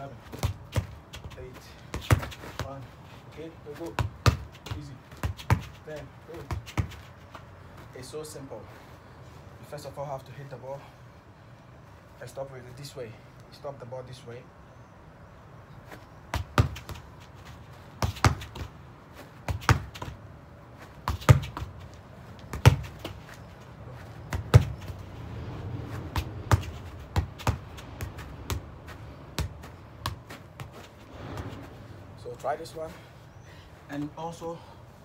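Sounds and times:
football kicked with thuds: 0.3 - 2.8, 3.8 - 7.0, 16.3 - 17.1, 18.0 - 18.8, 19.4 - 20.2, 21.0 - 21.8, 22.4 - 23.4, 24.2 - 25.1, 26.1 - 28.7, 29.3 - 31.7.

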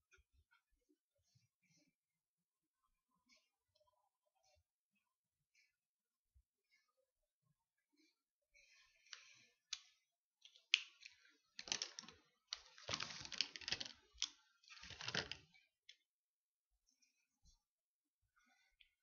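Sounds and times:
pens clattering together: 10.6 - 15.4.

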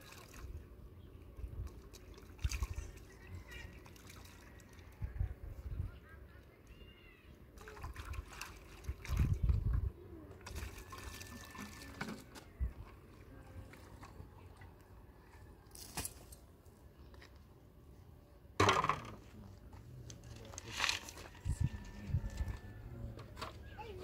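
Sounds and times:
water pouring into metal basin: 10.4 - 12.0.

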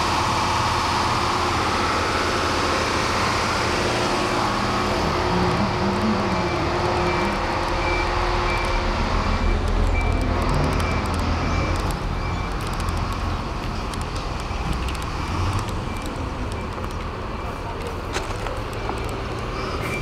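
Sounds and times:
truck diesel engine rumbling: 0.0 - 20.0.

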